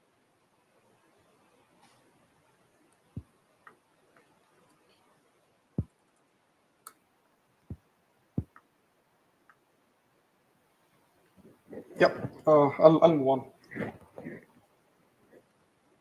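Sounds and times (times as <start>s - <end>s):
laptop keys and trackpad tapping: 5.8s - 6.3s, 7.7s - 8.7s.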